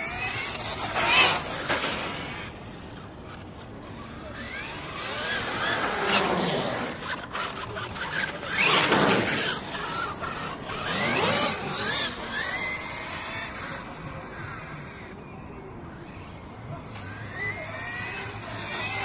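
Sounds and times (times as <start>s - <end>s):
electric toy truck motor whining: 0.0s - 13.7s.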